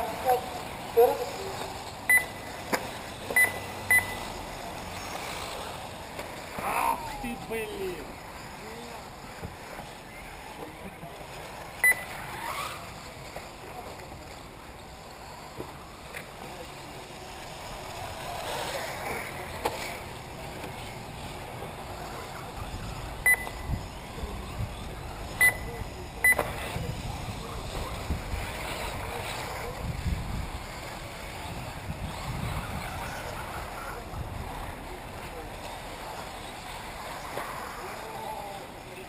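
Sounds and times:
rc cars running on dirt: 0:00.0 - 0:39.0
short high beeps: 0:02.1 - 0:02.5, 0:03.4 - 0:04.3, 0:11.8 - 0:12.2, 0:23.2 - 0:23.7, 0:25.4 - 0:26.5
wind on microphone: 0:29.8 - 0:30.7, 0:31.4 - 0:34.6.

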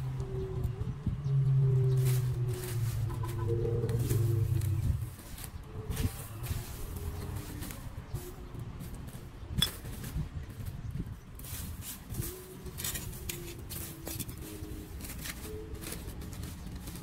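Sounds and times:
low rumble: 0:00.0 - 0:08.1
dry leaves rustling: 0:00.0 - 0:17.0.

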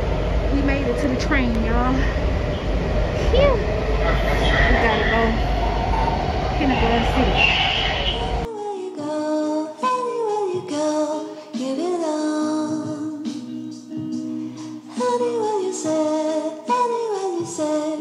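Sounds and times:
train noise: 0:00.0 - 0:08.5
song with sung vocals: 0:04.0 - 0:18.0.

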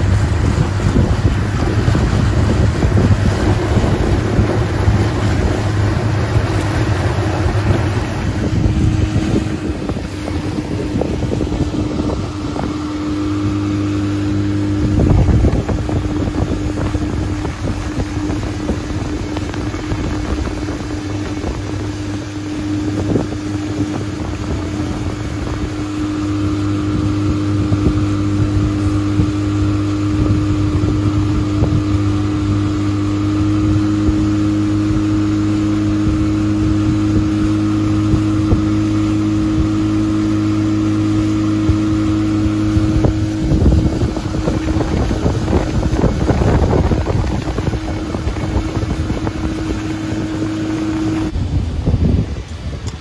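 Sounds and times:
outboard motor running: 0:00.0 - 0:53.0.

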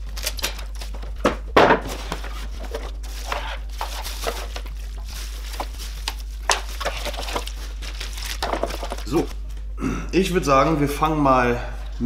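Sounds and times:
plastic packaging crinkling: 0:02.2 - 0:09.4.

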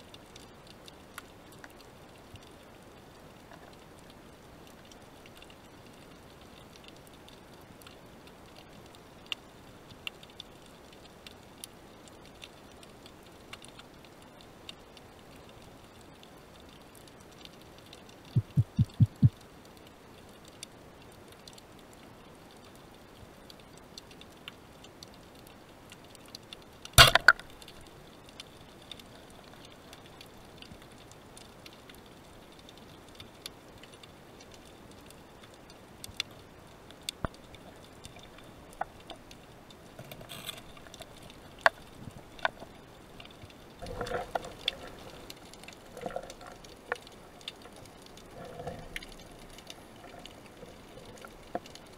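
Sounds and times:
faint underwater clicks: 0:00.0 - 0:51.9
low knocks: 0:18.4 - 0:19.3.

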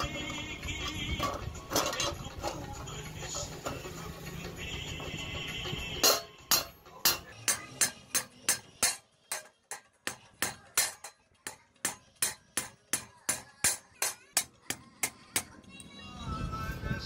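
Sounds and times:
hammer peening metal rivets: 0:06.0 - 0:15.4.

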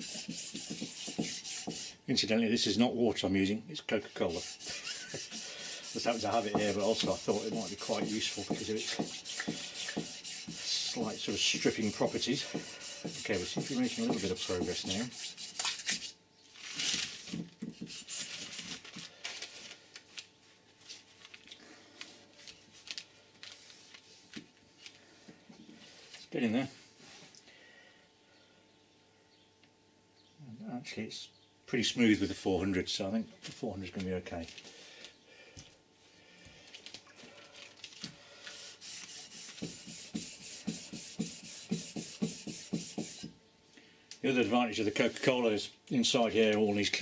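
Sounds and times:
sandpaper rubbing on metal: 0:00.0 - 0:02.0, 0:04.0 - 0:16.2, 0:17.8 - 0:18.5, 0:38.6 - 0:43.3
paper tissue rustling: 0:04.1 - 0:15.0, 0:16.5 - 0:25.1.

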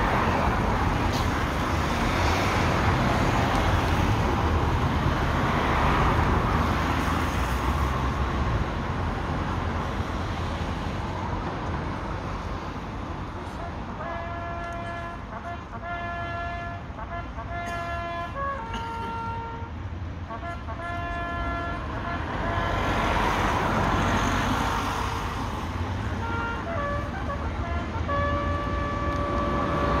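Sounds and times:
bugle call: 0:14.0 - 0:19.7
vehicle passing on wet road: 0:21.6 - 0:30.0.

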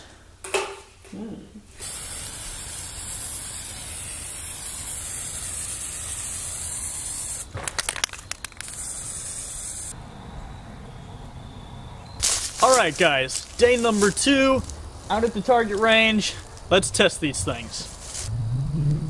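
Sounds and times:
spray can rattling when shaken: 0:01.8 - 0:09.9
spray can hissing: 0:01.8 - 0:10.0, 0:12.2 - 0:14.2.

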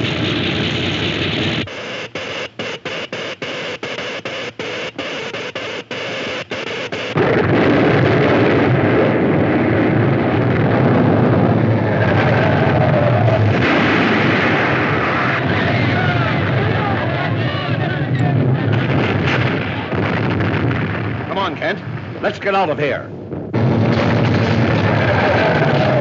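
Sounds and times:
explosion: 0:00.0 - 0:01.7, 0:07.0 - 0:22.4, 0:23.3 - 0:26.0
heavy rumble: 0:00.0 - 0:01.8, 0:07.1 - 0:26.0
electrical crackle: 0:00.0 - 0:26.0.

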